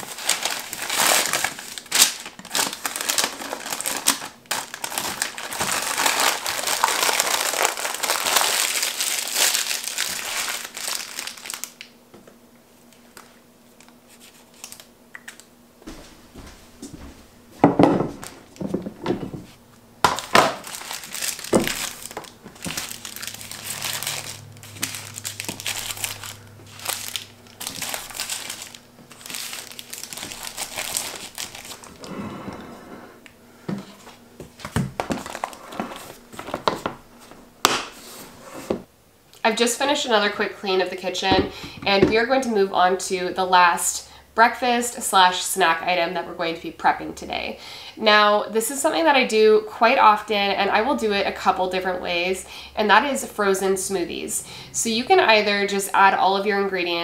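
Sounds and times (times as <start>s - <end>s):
parchment paper crinkling: 0.0s - 11.9s, 13.2s - 15.4s, 20.1s - 32.1s, 34.6s - 36.8s.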